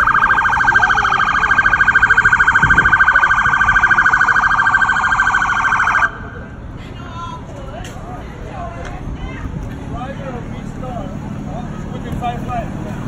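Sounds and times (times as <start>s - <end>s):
siren warbling: 0.0s - 6.4s.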